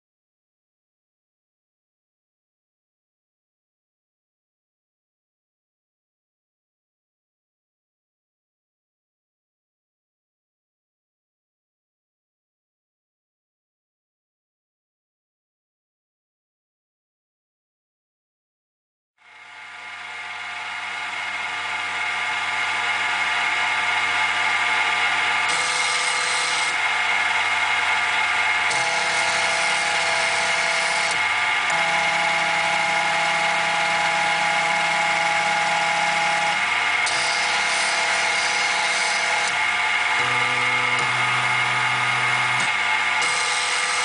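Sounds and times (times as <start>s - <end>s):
milling spindle high whine: 19.3s - 44.0s
end mill cutting wood: 20.1s - 44.0s
stepper motors humming: 20.1s - 44.0s.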